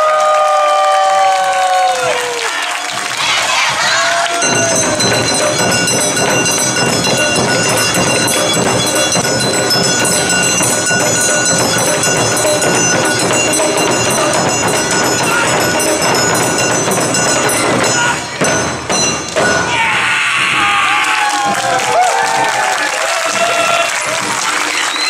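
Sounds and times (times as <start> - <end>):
taiko drums beating fast rhythm: 1.9 - 25.0
sustained high tones: 3.6 - 19.8.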